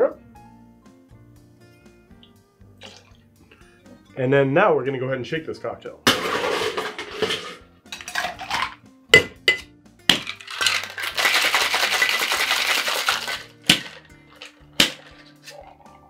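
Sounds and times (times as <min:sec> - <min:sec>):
ice clinking in metal shaker: 0:07.2 - 0:09.3, 0:10.1 - 0:16.0
ice rattling in shaker: 0:07.9 - 0:08.8, 0:10.1 - 0:16.0
sharp knocks on tin: 0:09.2 - 0:10.4.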